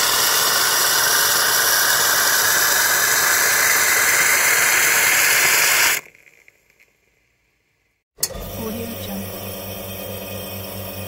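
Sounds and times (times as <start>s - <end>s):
steam wand hissing: 0.0s - 6.2s.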